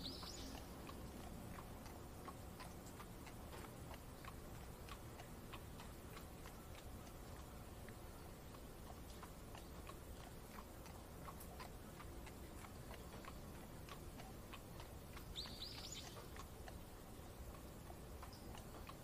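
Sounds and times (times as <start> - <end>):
bird chirps: 0.0 - 0.7, 15.2 - 16.3
light rain ticks: 0.0 - 19.0.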